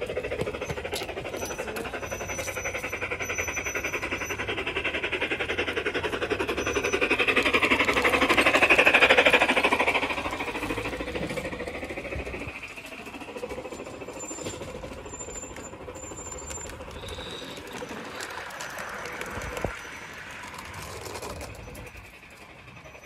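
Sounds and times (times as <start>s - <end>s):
model train rattling: 0.0s - 23.0s.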